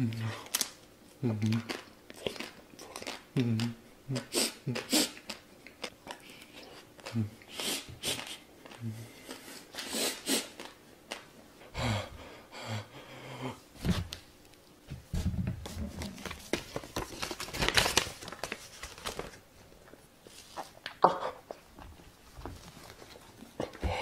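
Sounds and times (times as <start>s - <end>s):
man breathing heavily: 11.6s - 13.7s, 23.6s - 24.0s.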